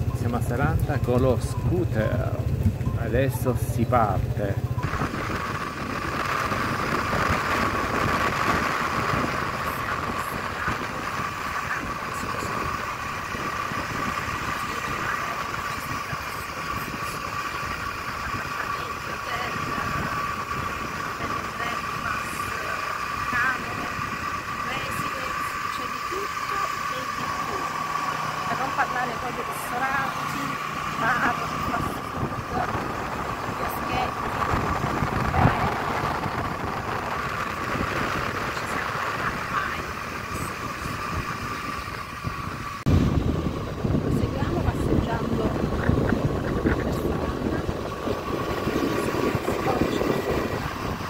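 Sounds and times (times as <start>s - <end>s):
scooter engine whine: 0.0s - 51.0s
wind rushing on microphone: 1.6s - 51.0s.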